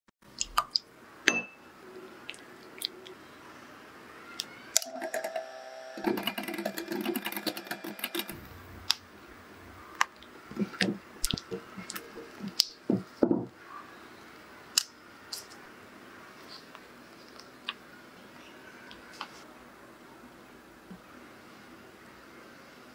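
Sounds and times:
steady buzzing hum: 0:04.8 - 0:12.6.

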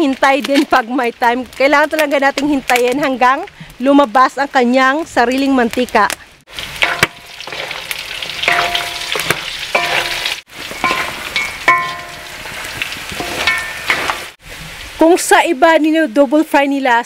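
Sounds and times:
meat sizzling in a pan: 0:06.5 - 0:14.6
pan clanking: 0:06.6 - 0:14.4.

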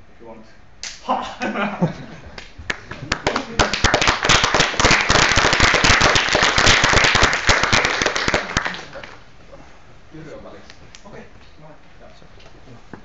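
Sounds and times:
audience applauding: 0:02.7 - 0:09.2.

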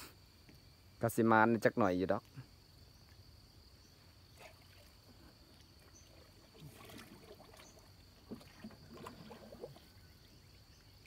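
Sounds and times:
water splashing around a boat: 0:03.9 - 0:11.0.

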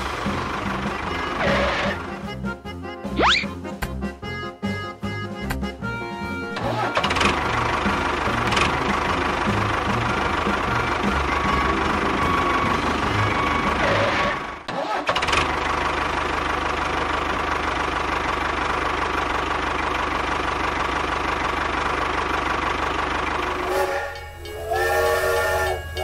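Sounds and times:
tractor engine running: 0:00.0 - 0:26.0
train horn chord: 0:23.4 - 0:26.0.

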